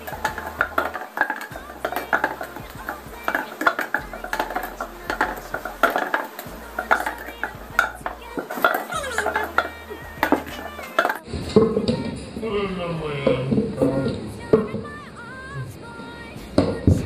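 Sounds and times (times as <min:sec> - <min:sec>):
cups clattering on tabletop: 0:00.0 - 0:02.6, 0:03.3 - 0:11.2.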